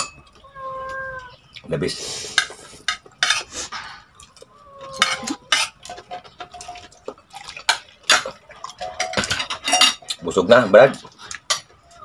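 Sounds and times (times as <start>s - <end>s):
cutlery clinking on a plate: 0.0s - 0.4s, 2.3s - 4.1s, 4.9s - 6.8s, 7.7s - 10.2s, 11.3s - 11.8s.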